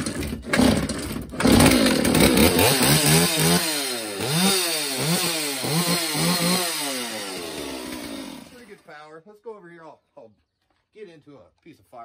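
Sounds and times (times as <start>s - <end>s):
chainsaw throttle revving: 0.0s - 8.8s.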